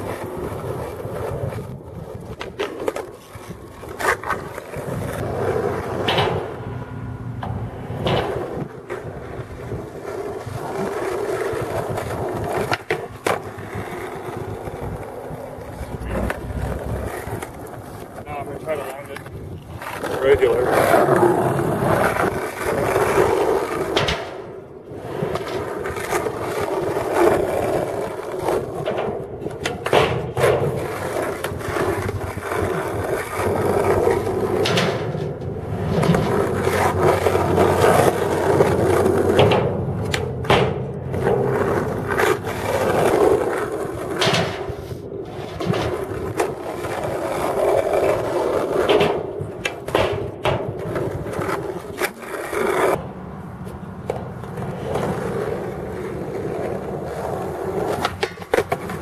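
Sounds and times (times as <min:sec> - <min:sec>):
skateboard clacking on ground: 0:00.0 - 0:59.0
skateboard wheels rolling on asphalt: 0:00.0 - 0:59.0.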